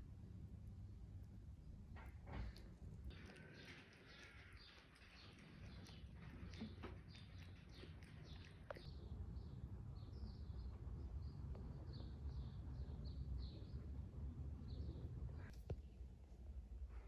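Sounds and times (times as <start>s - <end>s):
small bird chirping: 3.1s - 13.9s.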